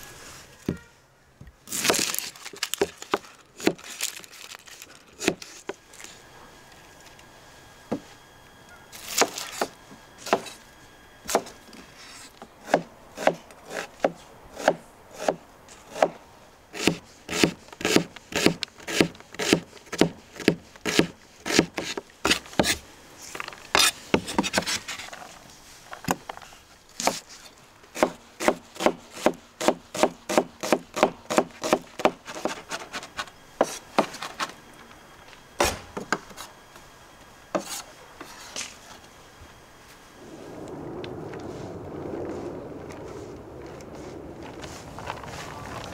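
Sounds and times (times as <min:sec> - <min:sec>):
knife chopping on wooden board: 0:12.6 - 0:16.2, 0:28.0 - 0:32.6.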